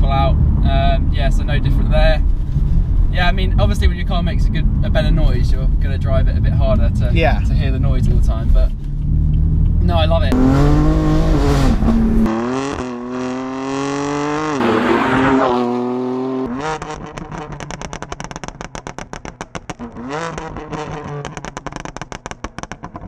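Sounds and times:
car engine revving through gears: 6.4 - 18.7, 19.7 - 23.0
exhaust pops and crackles: 16.7 - 23.0.

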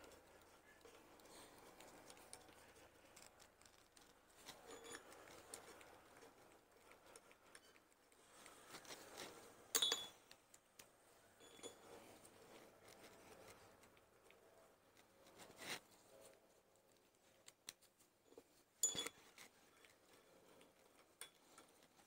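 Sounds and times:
sharp metallic clink: 9.7 - 10.2, 18.8 - 19.2.

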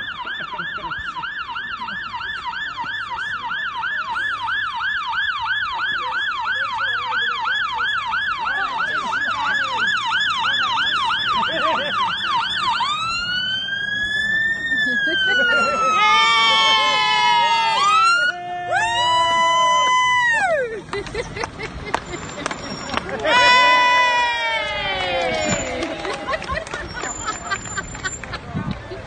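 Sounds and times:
fire engine siren: 0.0 - 20.9, 22.6 - 28.3.

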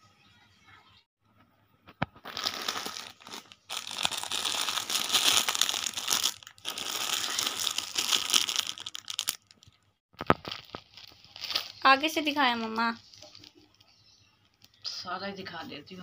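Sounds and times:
plastic wrapping crinkling: 2.2 - 14.8.

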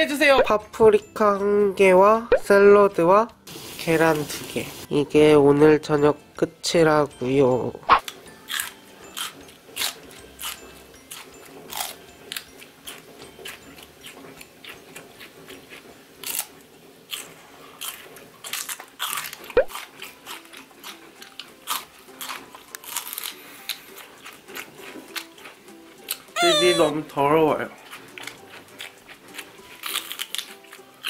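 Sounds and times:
celery crunching: 17.1 - 26.9, 27.9 - 31.0.

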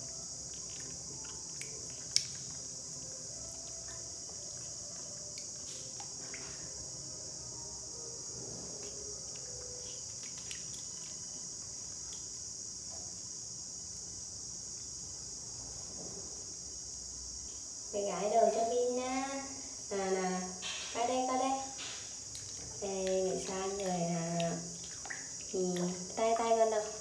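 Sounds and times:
high-pitched hiss: 0.0 - 27.0
small water splashes: 0.5 - 2.7, 10.1 - 11.4, 22.2 - 26.5.

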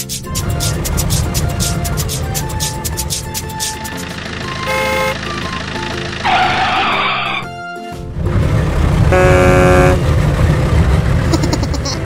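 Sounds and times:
light background music: 0.0 - 10.0
cartoon horn toot: 4.6 - 5.4, 9.1 - 10.0
tyre skid screech: 6.2 - 7.5.

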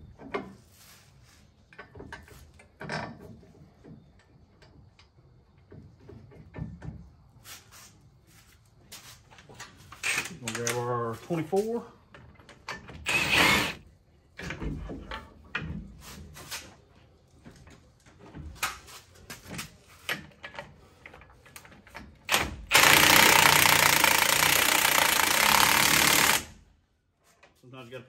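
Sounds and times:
impact wrench hammering: 13.1 - 13.8.

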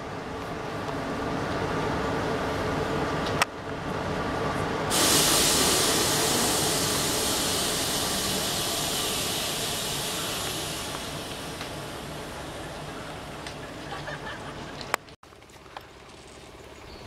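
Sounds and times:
low steady rumble: 0.0 - 14.9
compressed air hissing: 4.9 - 13.3.

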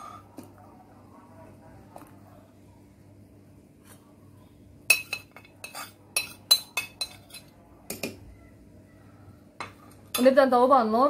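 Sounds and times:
metal spoon clinking on cookware: 4.9 - 8.2, 9.6 - 10.4.

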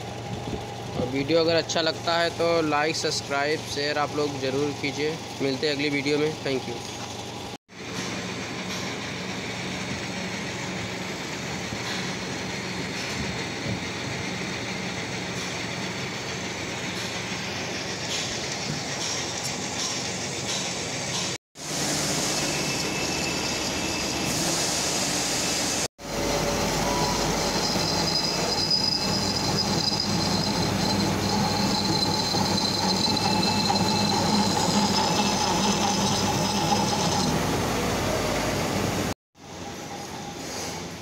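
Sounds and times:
metal lathe droning with whine: 21.6 - 24.5, 26.0 - 38.9.

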